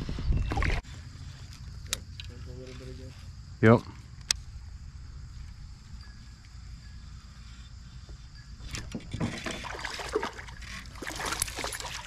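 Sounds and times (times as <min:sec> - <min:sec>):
steady low rumble: 0:00.0 - 0:08.6
fish splashing at water surface: 0:09.2 - 0:12.0.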